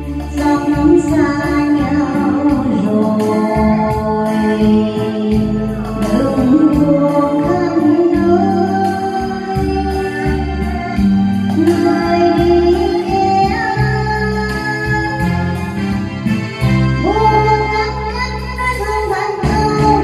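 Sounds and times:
backing track music: 0.0 - 20.0
woman singing into microphone: 0.0 - 20.0.

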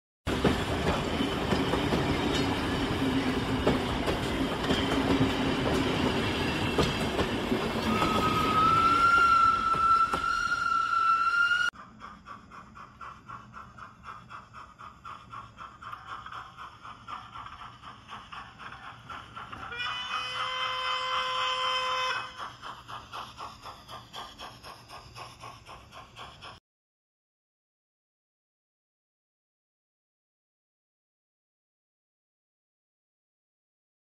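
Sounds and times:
steam hissing: 0.3 - 26.6
train wheels clickety-clack: 0.3 - 26.6
locomotive whistle: 7.7 - 11.7, 19.6 - 22.4.

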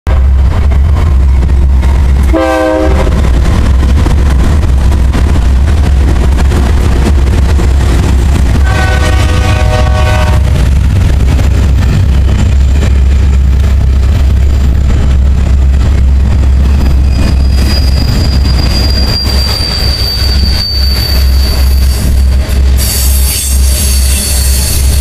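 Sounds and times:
freight train rumble: 0.1 - 25.0
locomotive air horn blasts: 2.3 - 3.2, 8.6 - 10.5.

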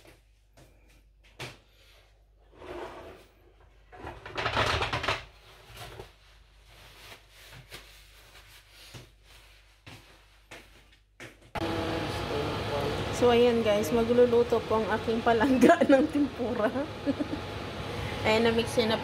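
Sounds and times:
clattering noise: 3.9 - 6.1
kitchen things knocking and clicking: 4.0 - 5.3.

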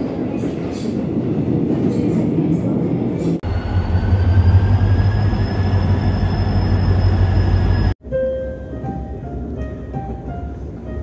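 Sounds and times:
train wheels rumbling on rails: 0.0 - 8.0
low engine drone: 3.4 - 8.0.

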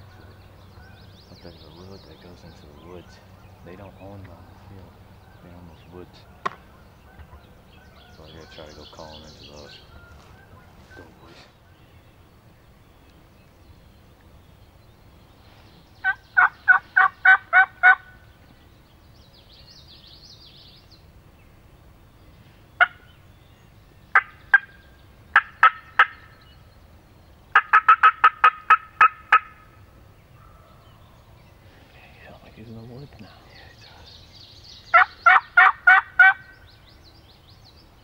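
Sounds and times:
turkey call yelps and cutts: 16.0 - 18.2, 22.8 - 23.2, 24.1 - 26.4, 27.5 - 29.8, 34.9 - 36.6.

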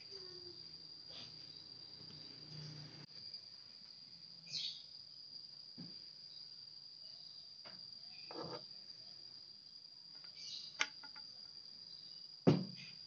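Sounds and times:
cricket trill: 0.0 - 13.0
loud knock: 12.5 - 12.8.

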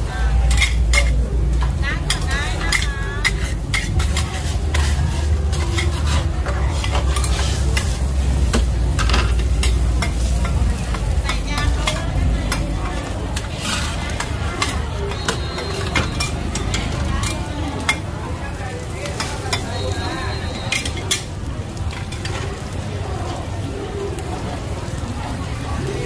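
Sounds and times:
pancakes sizzling in oil: 0.0 - 26.0
metal spatula scraping griddle: 0.1 - 18.0.

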